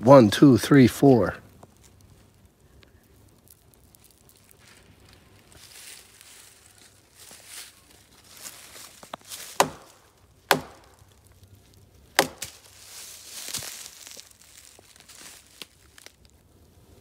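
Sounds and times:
dry leaves rustling underfoot: 1.4s - 17.0s
stick knocking on wood: 9.6s - 9.9s, 10.5s - 10.9s, 12.2s - 12.5s.

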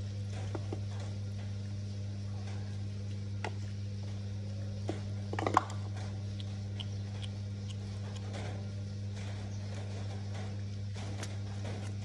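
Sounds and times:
steady low hum: 0.0s - 12.0s
cat chewing food: 5.5s - 8.7s.

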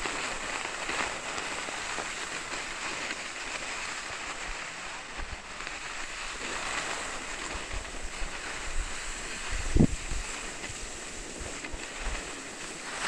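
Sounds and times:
skis hissing over snow: 0.0s - 13.0s
wind buffeting microphone: 7.3s - 12.8s.

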